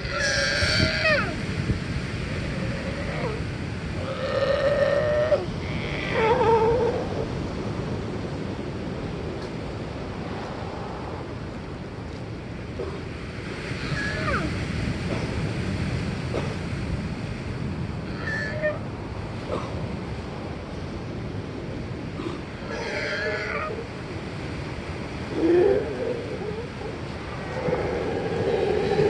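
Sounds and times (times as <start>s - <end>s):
sea lions barking: 0.0s - 1.5s, 2.2s - 7.4s, 13.7s - 14.6s, 18.0s - 18.9s, 22.4s - 24.2s, 25.1s - 29.0s
ocean surf: 0.0s - 29.0s.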